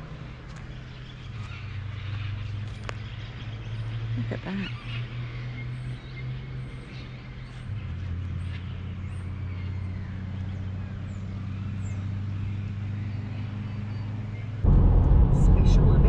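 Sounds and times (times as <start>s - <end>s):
low engine hum: 5.3s - 16.0s.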